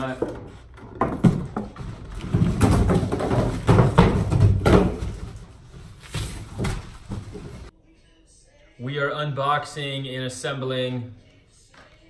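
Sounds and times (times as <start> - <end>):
cardboard box thumping: 1.0 - 5.5.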